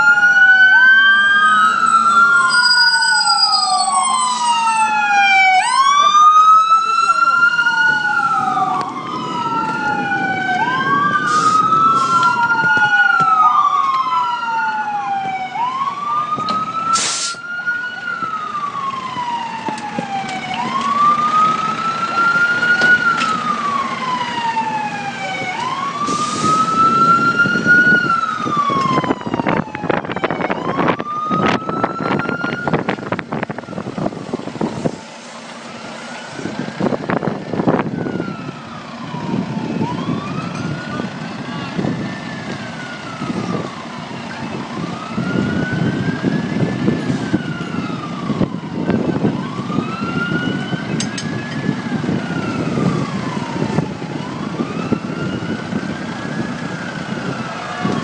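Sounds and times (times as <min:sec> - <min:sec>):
fire engine sirens wailing: 0:00.0 - 0:58.0.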